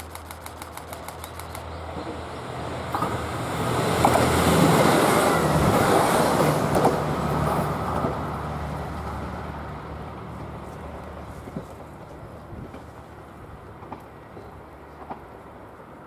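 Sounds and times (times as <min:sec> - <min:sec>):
sharp clicks: 0:00.0 - 0:01.7
diesel engines humming: 0:00.0 - 0:16.0
train wheels rumbling on rails: 0:00.0 - 0:16.0.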